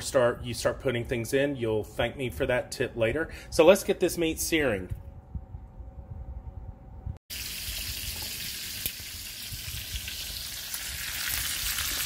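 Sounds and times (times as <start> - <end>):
meat sizzling in a frying pan: 7.3 - 12.0.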